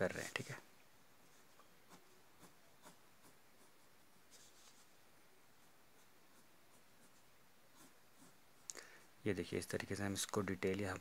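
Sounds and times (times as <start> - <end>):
pencil scratching on paper: 1.8 - 4.9, 5.6 - 8.4.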